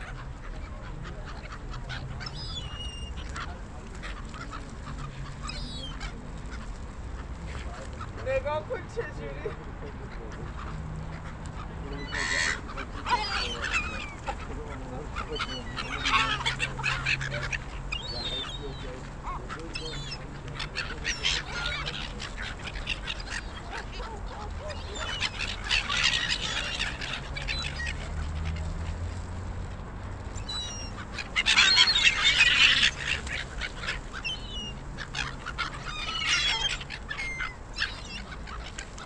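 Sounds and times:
gulls calling and squabbling: 0:00.0 - 0:29.2, 0:30.2 - 0:39.0.

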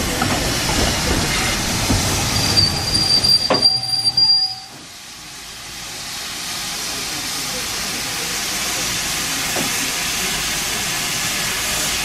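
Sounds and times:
steam hiss: 0:00.0 - 0:12.0
train rumble: 0:00.0 - 0:12.0
train brake squeal: 0:02.2 - 0:04.9.

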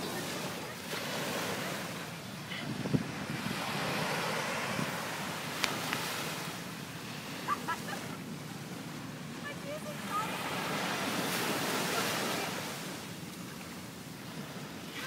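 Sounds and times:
waves washing up a beach: 0:00.0 - 0:15.0
wind buffeting the microphone: 0:02.1 - 0:06.2.

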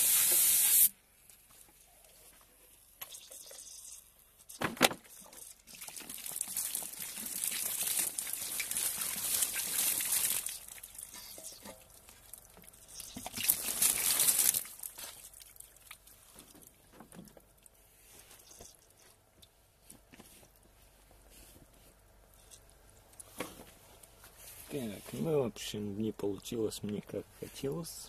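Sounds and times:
water spraying: 0:00.0 - 0:00.9, 0:05.2 - 0:15.4
water dripping: 0:05.2 - 0:17.8.

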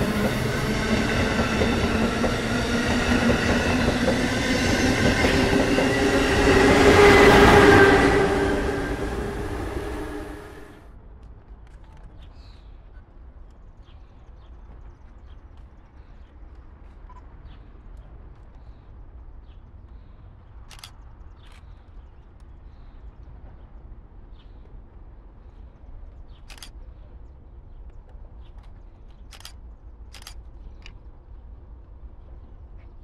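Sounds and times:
faint clicks and chirps: 0:13.4 - 0:23.3, 0:25.5 - 0:27.0, 0:27.7 - 0:31.1.

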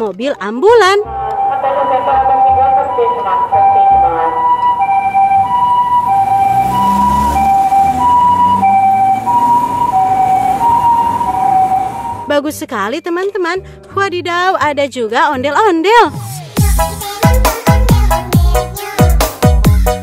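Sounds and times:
two-tone ambulance siren: 0:01.0 - 0:12.4.

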